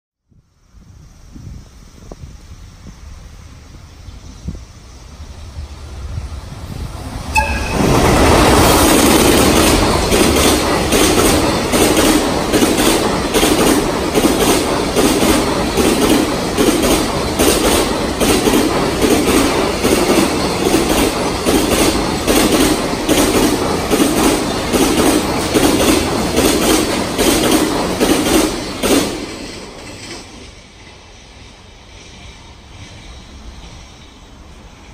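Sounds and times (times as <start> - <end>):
freight train rumbling past: 0.6 - 34.9
wheels clacking over rail joints: 7.3 - 33.8.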